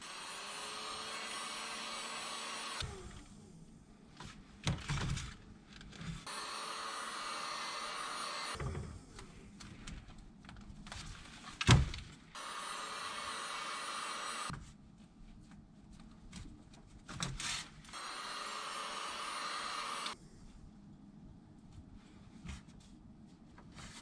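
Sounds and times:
heat gun fan hissing: 6.3 - 8.7, 12.4 - 14.5, 17.9 - 20.2.

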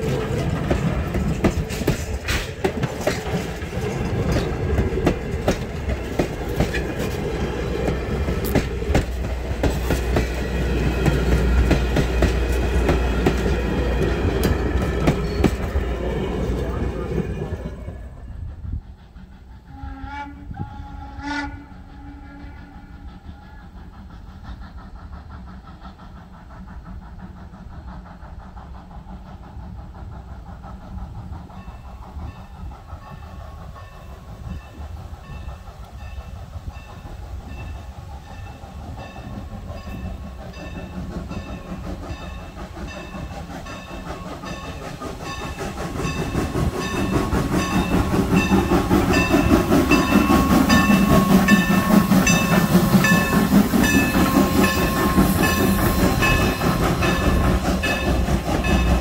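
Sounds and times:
steam locomotive rumble: 0.0 - 59.0
steam whistle blast: 19.7 - 23.6
locomotive bell ringing: 31.6 - 59.0.

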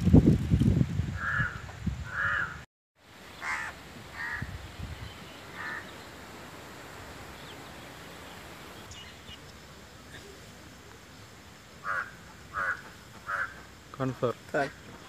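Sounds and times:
faint outdoor background: 0.0 - 15.0
crows cawing: 1.2 - 2.6, 3.4 - 4.5, 5.5 - 5.9, 11.8 - 13.7.

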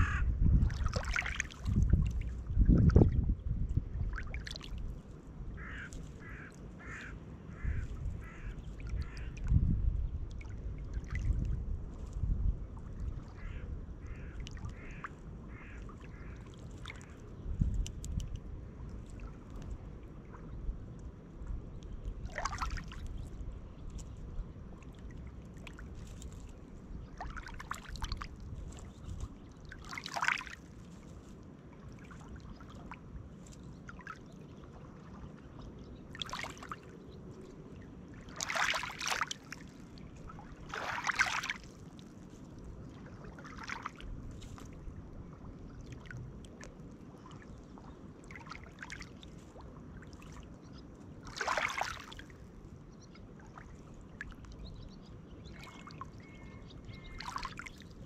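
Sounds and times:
waves lapping on pebble shore: 29.7 - 31.1, 38.3 - 40.0, 40.6 - 42.2, 51.3 - 52.2.

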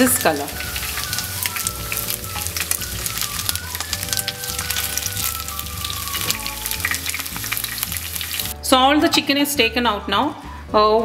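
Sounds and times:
hot oil sizzling and crackling: 0.0 - 8.6.

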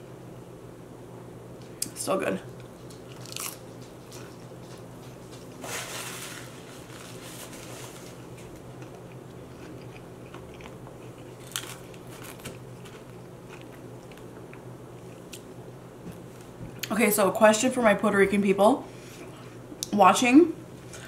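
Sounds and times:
person chewing crunchy food: 2.8 - 5.5, 8.2 - 15.5.

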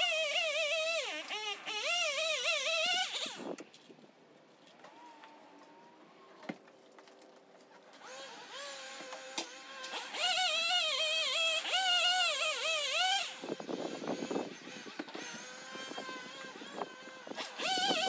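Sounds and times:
chainsaw engine revving: 0.0 - 3.6, 8.0 - 18.0.

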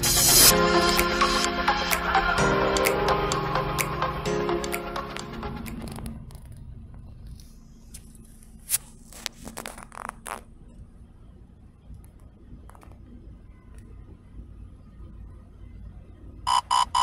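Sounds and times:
clicks and scrapes: 7.3 - 10.5.

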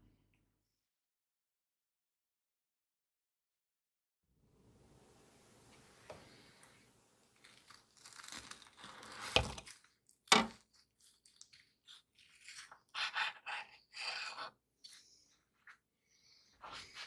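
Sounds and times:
knife crunching through cake crust: 7.4 - 15.1.

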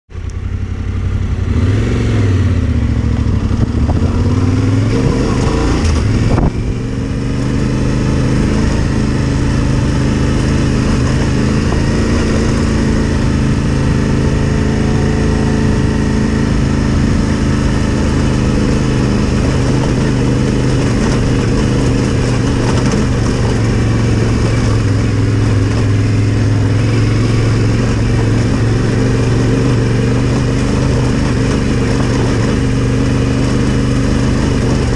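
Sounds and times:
motorcycle engine running: 0.1 - 34.9.

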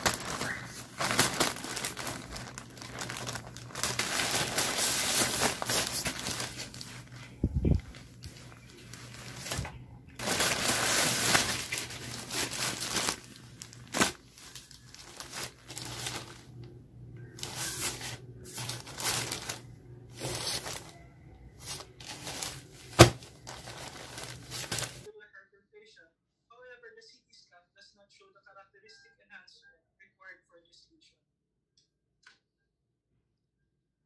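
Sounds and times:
plastic bags crinkling: 0.0 - 16.6, 17.3 - 25.1.

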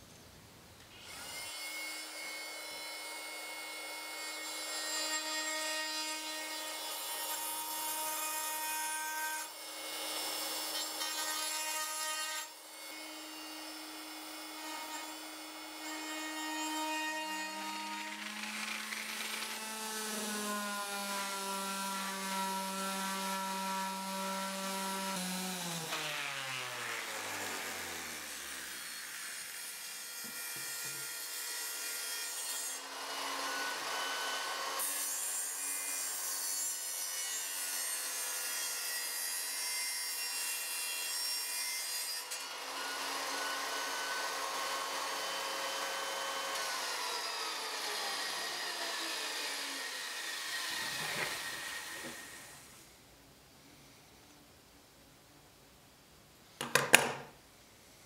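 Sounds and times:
power tool whining through wood: 1.0 - 36.5, 42.2 - 52.8.

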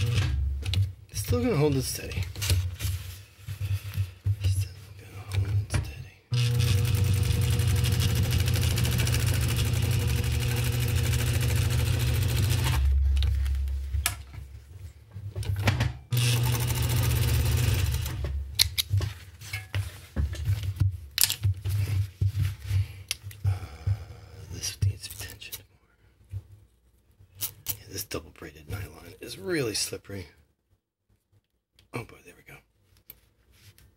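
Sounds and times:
sewing machine stitching: 0.0 - 0.8, 6.3 - 13.3, 16.1 - 18.5
rustling of fabric handling: 1.1 - 5.0.

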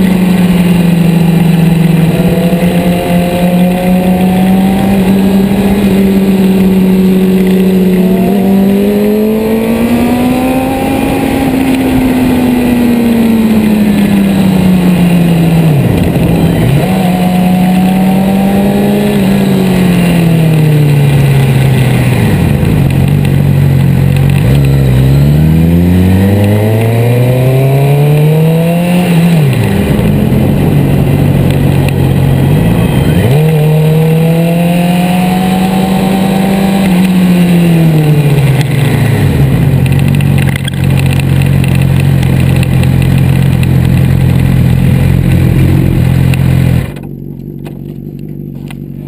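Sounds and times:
wind noise: 0.0 - 47.0
motorcycle engine revving: 0.0 - 49.0.

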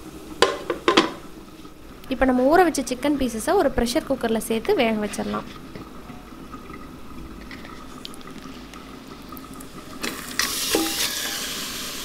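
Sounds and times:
faint steady hum: 0.0 - 12.0
sizzling hiss: 10.0 - 12.0.

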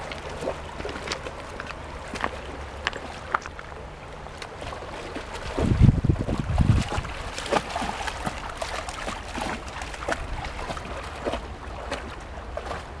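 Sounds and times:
dog splashing through water: 0.0 - 3.6, 4.3 - 13.0
river water rushing: 0.0 - 13.0
wind rumble on microphone: 4.6 - 13.0.

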